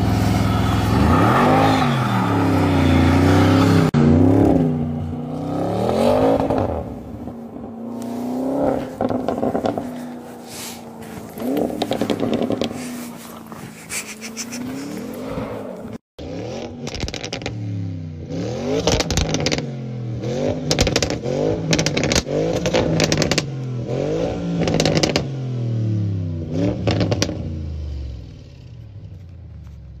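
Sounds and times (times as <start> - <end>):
car engine revving: 0.0 - 27.5
exhaust crackles and pops: 7.9 - 16.0, 16.6 - 17.6, 18.8 - 19.7, 20.6 - 23.5, 24.6 - 25.3, 26.8 - 27.4.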